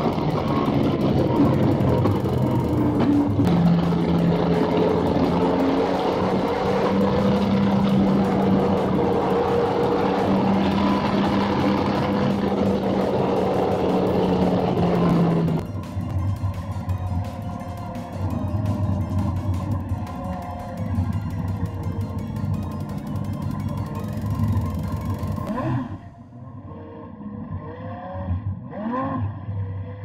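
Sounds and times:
racing car engine running: 0.0 - 30.0.

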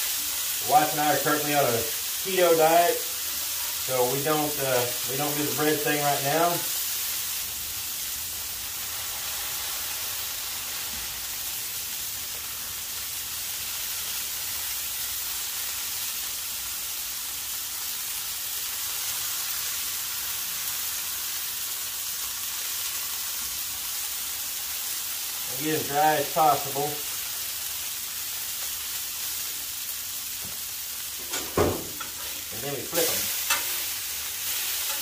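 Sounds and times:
patties sizzling on a griddle: 0.0 - 35.0.

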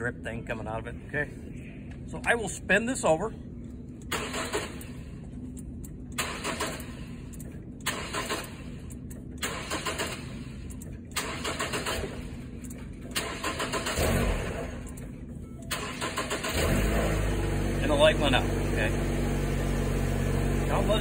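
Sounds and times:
car starter cranking engine: 4.0 - 5.3, 6.1 - 21.0.

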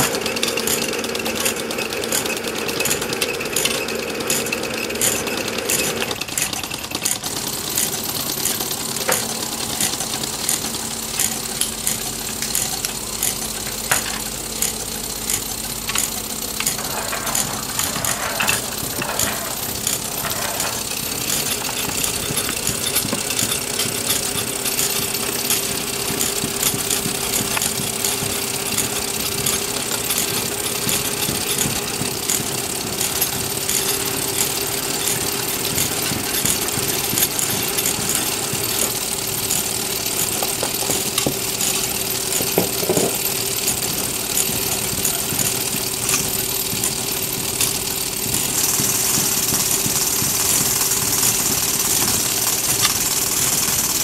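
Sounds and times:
quick mechanical clicks and rattles: 0.0 - 54.0
steady mechanical hum: 0.0 - 54.0.

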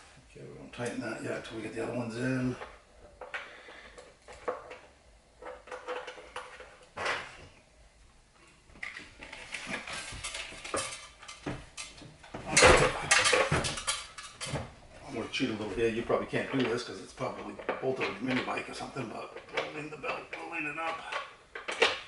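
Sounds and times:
small metal clinks and rattles: 8.8 - 12.0, 12.6 - 14.6.

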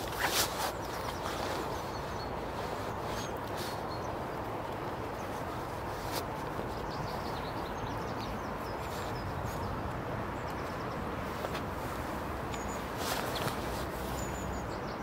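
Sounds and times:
wind: 0.0 - 15.0.

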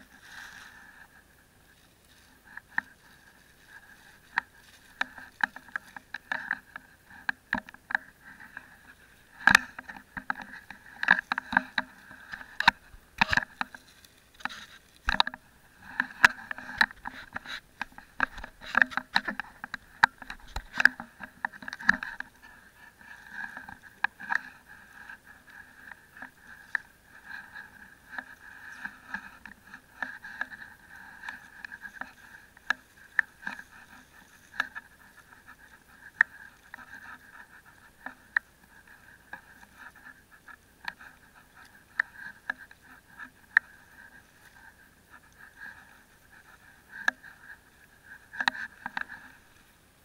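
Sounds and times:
sharp clicks and knocks: 3.7 - 44.2.

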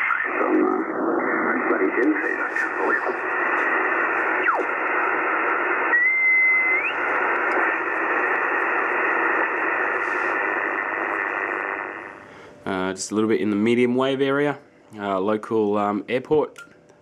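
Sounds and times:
radio band hiss: 0.0 - 16.2
radio whistle sliding in pitch: 5.8 - 7.1.

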